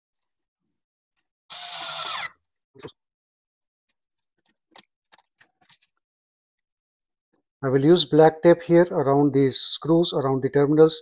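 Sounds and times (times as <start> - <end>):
cordless screwdriver motor whir: 1.5 - 2.4.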